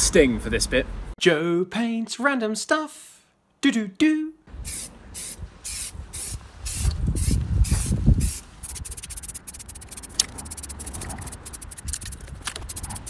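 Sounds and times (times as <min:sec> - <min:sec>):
spray paint can spraying: 0:04.7 - 0:13.0.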